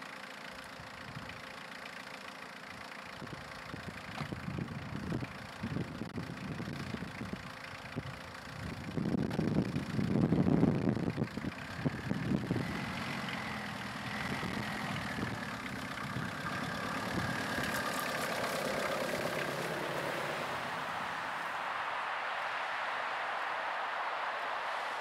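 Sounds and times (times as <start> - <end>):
vehicle engine running: 0.0 - 21.8
wind buffeting microphone: 3.2 - 21.4.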